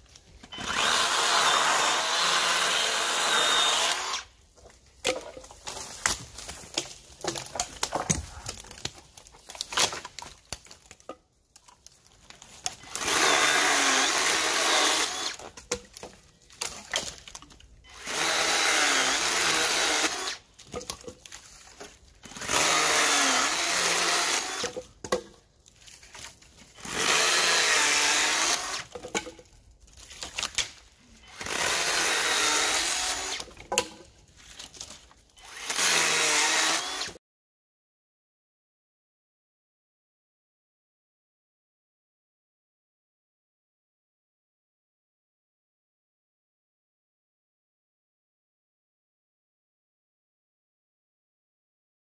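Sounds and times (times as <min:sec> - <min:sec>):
cordless chainsaw cutting: 0:00.5 - 0:04.3, 0:12.8 - 0:15.5, 0:17.9 - 0:20.4, 0:22.3 - 0:24.8, 0:26.8 - 0:28.9, 0:31.2 - 0:33.5, 0:35.4 - 0:37.2.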